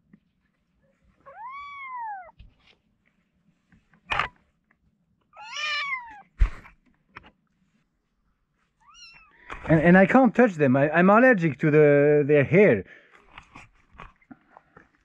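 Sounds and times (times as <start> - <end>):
kittens meowing: 1.2 - 2.4, 5.4 - 6.4, 8.8 - 9.4.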